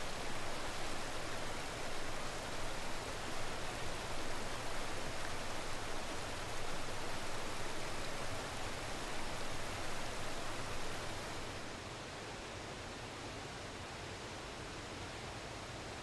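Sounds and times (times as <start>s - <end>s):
water rushing over rocks: 0.0s - 11.7s.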